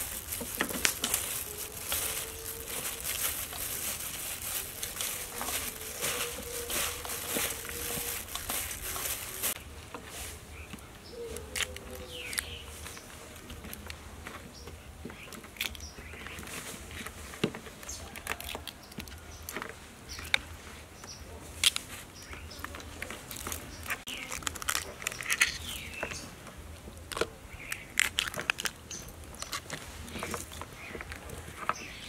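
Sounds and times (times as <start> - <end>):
crab shells cracking: 0.0 - 9.4, 17.8 - 20.4, 22.5 - 26.2, 26.8 - 31.4.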